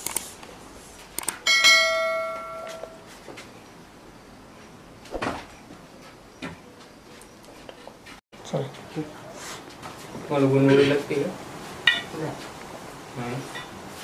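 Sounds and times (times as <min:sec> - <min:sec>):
struck metal ringing: 0:01.4 - 0:03.0.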